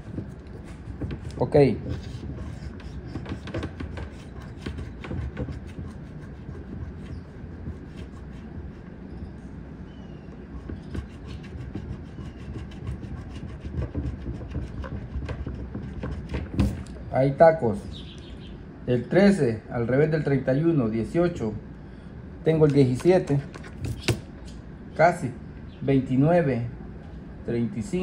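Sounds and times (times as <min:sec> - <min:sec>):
coin scratching lottery ticket: 0:00.0 - 0:08.9, 0:10.5 - 0:16.4.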